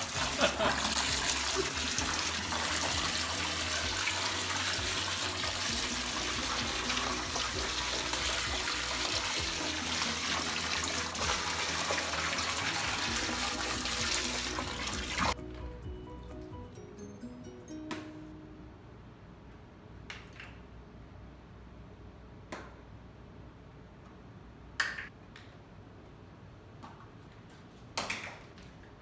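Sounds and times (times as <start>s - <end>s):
hose water splashing into bowl: 0.0s - 15.4s
background music: 0.0s - 19.2s.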